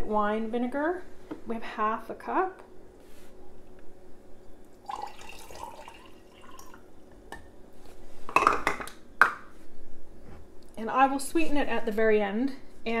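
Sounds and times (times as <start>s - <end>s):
vinegar pouring into jar: 4.8s - 6.8s.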